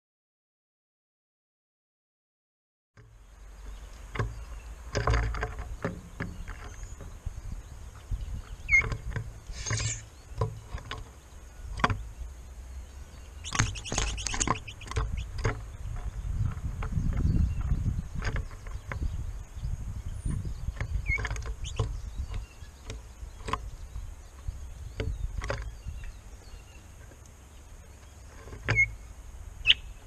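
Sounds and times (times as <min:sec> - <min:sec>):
wind rumble on microphone: 0:03.2 - 0:30.0
clicks and knocks: 0:04.1 - 0:07.1.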